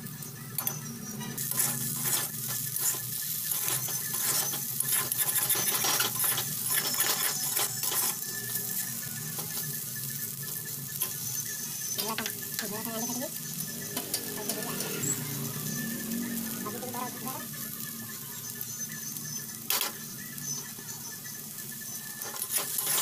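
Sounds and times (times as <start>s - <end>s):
hot oil sizzling: 0.0s - 23.0s
spatula scraping a pan: 0.9s - 17.1s, 22.0s - 23.0s.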